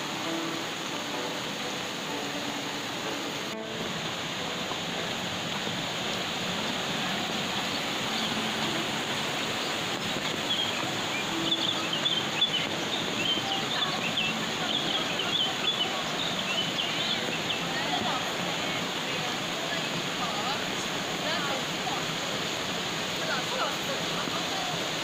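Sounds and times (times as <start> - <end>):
falling water rushing: 0.0 - 25.0
small birds chirping: 6.0 - 18.8.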